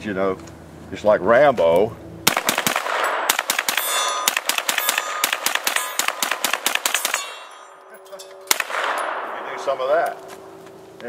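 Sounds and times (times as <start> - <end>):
rapid gunshots: 2.3 - 7.5, 8.5 - 9.8
steel targets ringing: 2.8 - 10.6.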